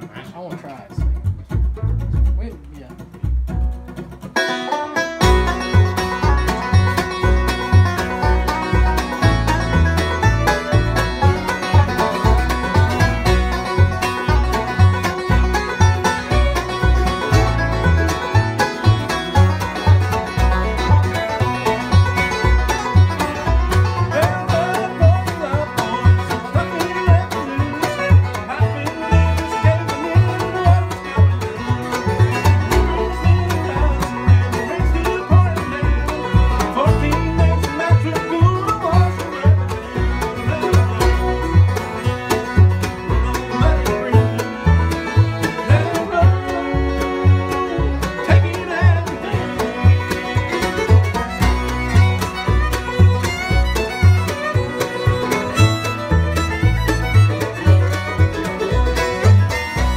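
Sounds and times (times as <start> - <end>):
banjo rolls: 0.0 - 59.9
bass notes: 0.0 - 59.9
dobro picking: 0.0 - 59.9
mandolin: 0.0 - 59.9
resonator guitar: 0.0 - 59.9
man singing: 23.9 - 31.3, 32.2 - 44.7, 45.4 - 50.2, 57.4 - 59.0.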